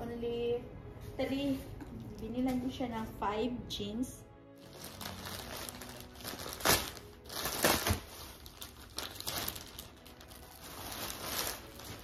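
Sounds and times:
plastic bag crinkling: 4.6 - 12.0.

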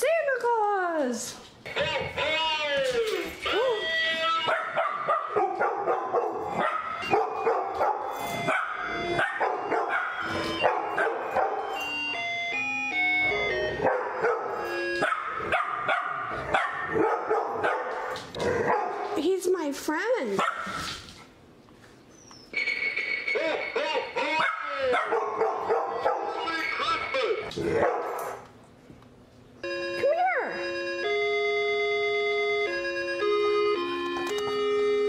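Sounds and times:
christmas tune: 1.7 - 5.0, 6.9 - 15.4, 22.6 - 24.5, 29.6 - 35.0
dogs barking: 4.4 - 11.8, 13.3 - 19.2, 20.4 - 20.8, 23.3 - 28.4.

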